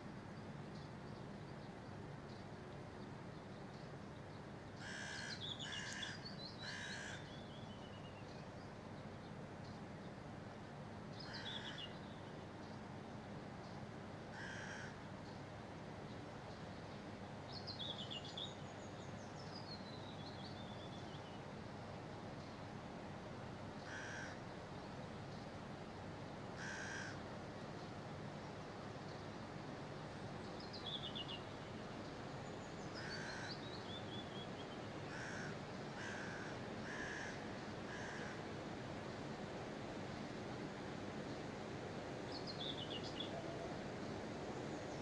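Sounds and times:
low background hiss: 0.0 - 45.0
crows cawing: 4.8 - 7.3, 14.3 - 15.0, 23.8 - 24.4, 26.6 - 27.2, 33.0 - 33.6, 35.1 - 38.5.

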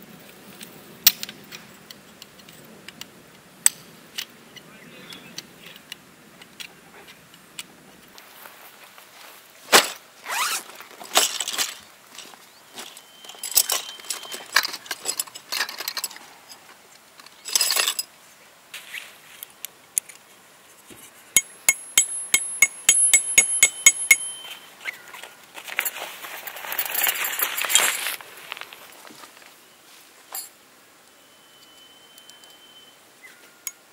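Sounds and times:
nylon tarp rustling: 8.2 - 13.4, 24.6 - 30.1
metal poles clinking: 9.8 - 18.1, 21.4 - 25.0, 25.6 - 28.2, 30.3 - 30.6.

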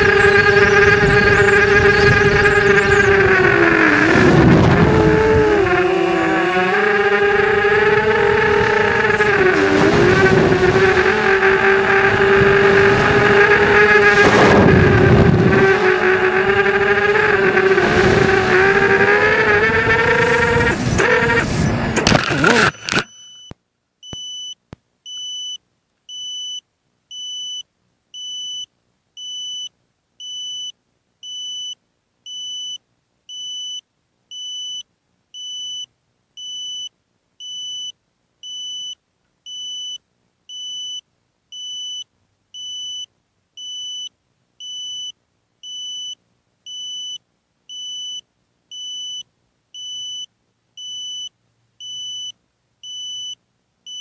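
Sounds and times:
high-pitched electronic beeps: 0.0 - 10.2.

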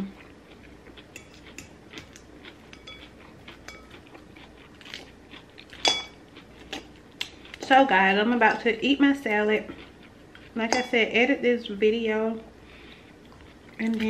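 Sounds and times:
chewing and crunching: 0.0 - 7.7, 9.2 - 10.6, 13.0 - 14.0.

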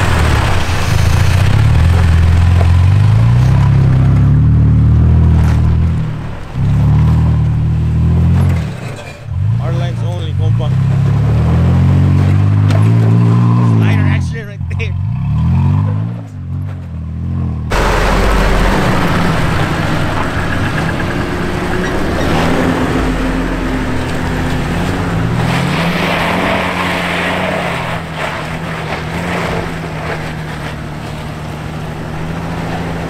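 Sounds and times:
engine revving up and down: 0.0 - 33.0
truck engine: 0.0 - 33.0
loud steady rush of noise: 17.7 - 26.4.

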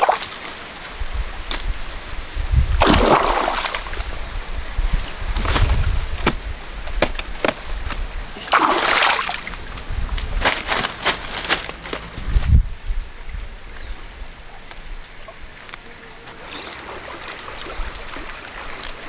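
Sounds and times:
water splashing in stream: 0.0 - 0.8, 2.7 - 4.2, 8.4 - 11.6, 16.3 - 19.0
stream running: 0.0 - 5.3, 5.9 - 11.3, 14.4 - 19.0.

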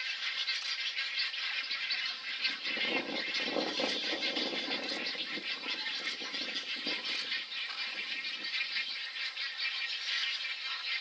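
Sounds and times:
rattling clicking bird calls: 2.9 - 8.6.

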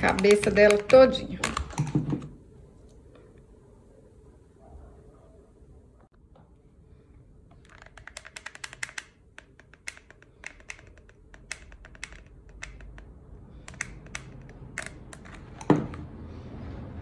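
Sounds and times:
glue gun trigger clicks: 7.7 - 15.7.

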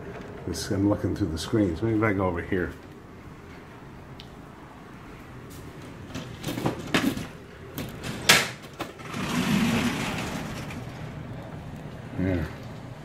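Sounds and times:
window blind slats clattering: 5.8 - 11.4.

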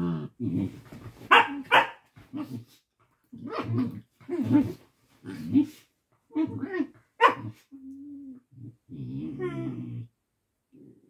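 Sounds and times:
dogs barking: 1.3 - 2.0, 7.2 - 7.5.

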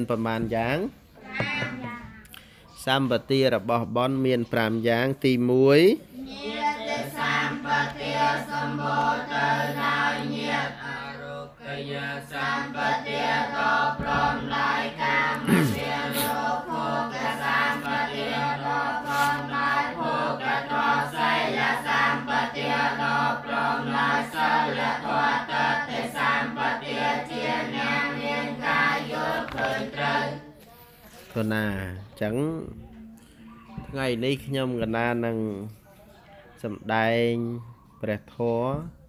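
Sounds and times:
group chanting in unison: 6.2 - 30.6.

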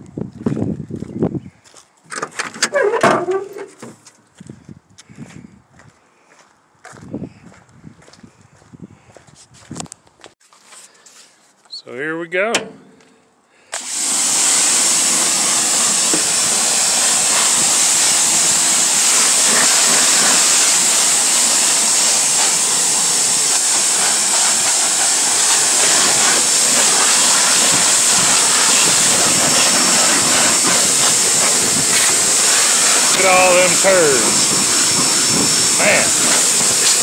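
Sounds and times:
pressure washer spraying: 13.7 - 37.0.

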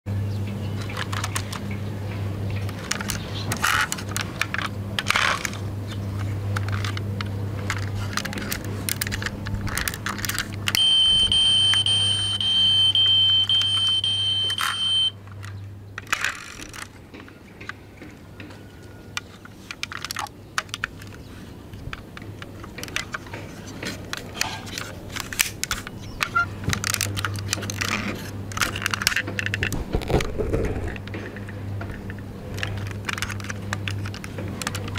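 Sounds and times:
low steady hum: 0.1 - 34.9
plastic toy clicks and rattles: 0.8 - 1.8, 2.5 - 10.8, 13.3 - 34.9
high-pitched electronic tone: 10.8 - 15.2.

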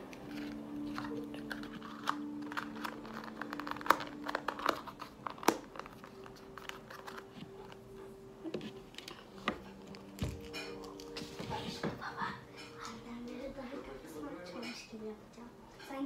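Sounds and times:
plastic wrapping crinkling: 0.0 - 11.8.

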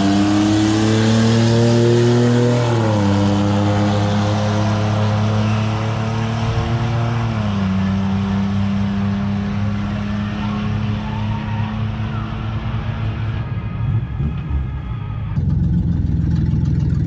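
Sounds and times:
vehicle engine running: 9.8 - 17.0.

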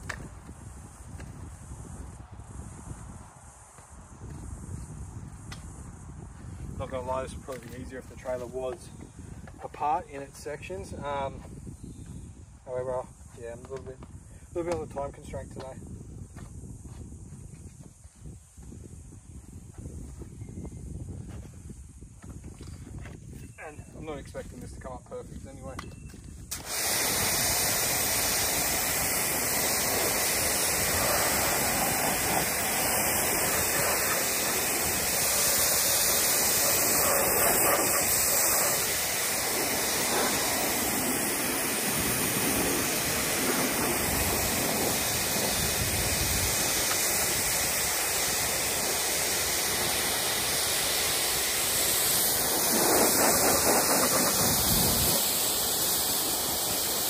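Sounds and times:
pressure washer water jet hissing: 26.5 - 57.0.

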